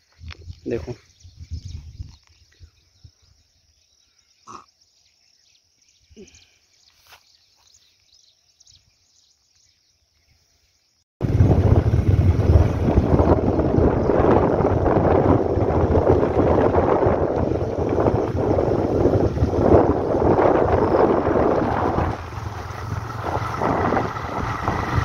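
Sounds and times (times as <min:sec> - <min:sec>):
wind buffeting microphone: 0:00.0 - 0:03.7, 0:11.2 - 0:25.0.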